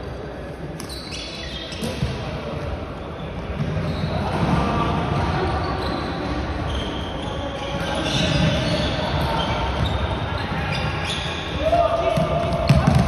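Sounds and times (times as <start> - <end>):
shoes squeaking on floor: 0.8 - 2.2, 3.1 - 4.5, 5.4 - 11.5.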